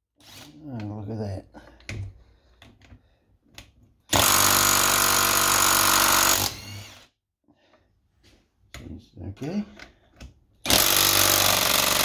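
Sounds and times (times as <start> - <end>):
impact driver hammering: 10.6 - 12.0.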